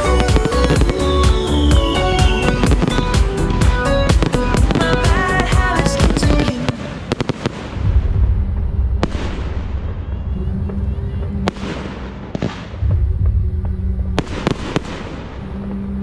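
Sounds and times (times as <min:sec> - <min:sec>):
low rumble: 0:07.6 - 0:16.0.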